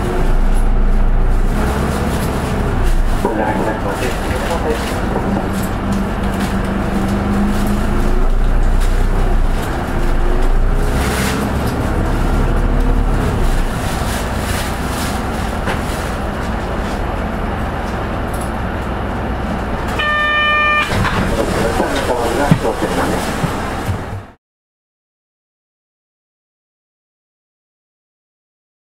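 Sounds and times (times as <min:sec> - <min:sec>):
bus diesel engine accelerating: 0:00.0 - 0:24.4
electronic chime: 0:20.0 - 0:20.9.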